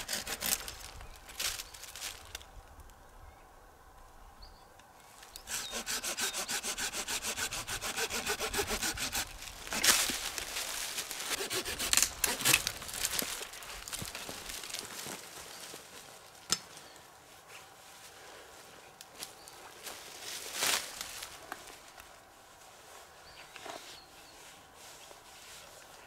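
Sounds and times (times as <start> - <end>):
hand saw cutting wood: 0.0 - 0.8, 5.4 - 10.2, 11.2 - 12.8
sharp wood crack: 5.4 - 14.8.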